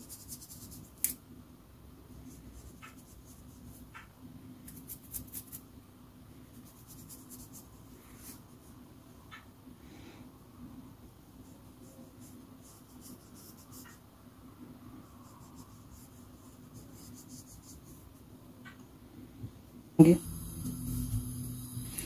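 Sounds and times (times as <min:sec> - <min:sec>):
fingers rubbing flour on dough: 0:00.0 - 0:01.1, 0:02.2 - 0:04.1, 0:06.5 - 0:08.8, 0:11.4 - 0:14.1, 0:14.9 - 0:18.3.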